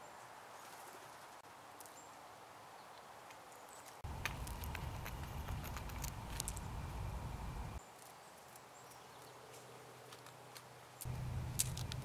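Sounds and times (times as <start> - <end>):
squirrel gnawing shell: 4.0 - 8.7, 10.0 - 12.0
low rumble: 4.1 - 7.8, 11.1 - 12.0.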